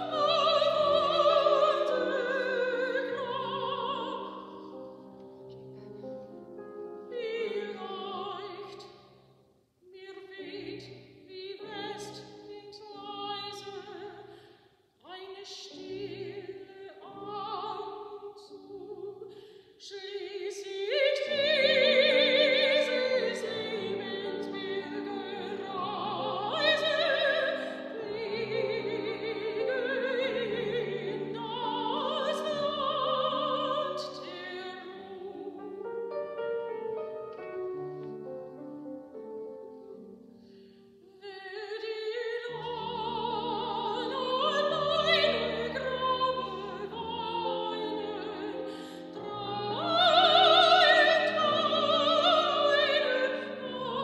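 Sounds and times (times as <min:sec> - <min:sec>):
piano accompaniment: 0:00.0 - 0:09.0, 0:20.7 - 0:41.0
soprano singing: 0:00.0 - 0:09.1, 0:09.8 - 0:14.4, 0:15.0 - 0:54.0.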